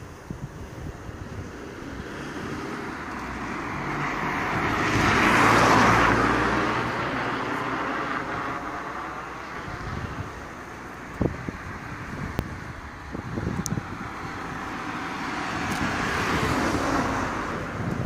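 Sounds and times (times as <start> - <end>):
car driving past: 2.0 - 9.5.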